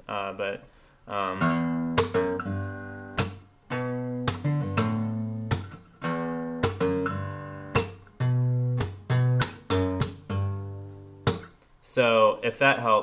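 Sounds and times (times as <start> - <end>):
acoustic guitar fingerstyle: 1.3 - 11.6
percussive guitar slap: 1.4 - 11.6.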